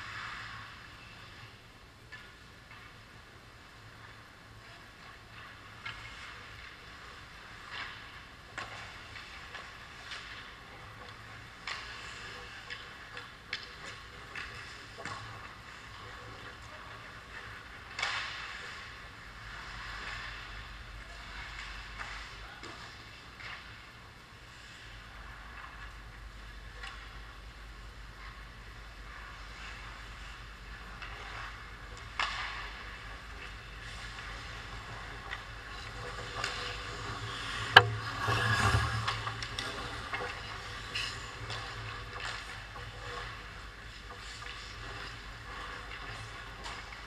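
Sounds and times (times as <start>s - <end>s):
skates scraping on ice: 5.2s - 23.8s, 29.3s - 47.0s
hockey sticks clattering: 5.3s - 19.1s, 30.2s - 47.0s
low hum: 24.4s - 47.0s.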